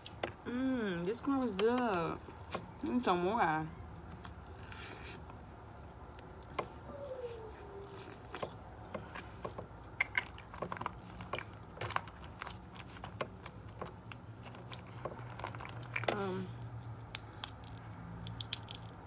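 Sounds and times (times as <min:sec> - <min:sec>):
chewing corn on the cob: 0:04.4 - 0:19.0.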